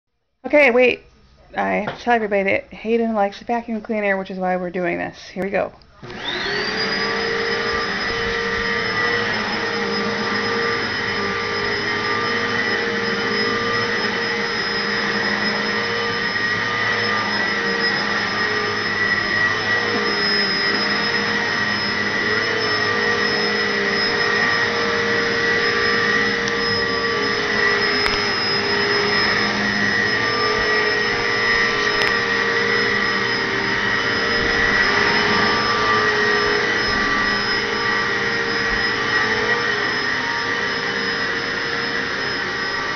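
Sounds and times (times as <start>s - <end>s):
vacuum cleaner motor running: 5.9s - 42.9s.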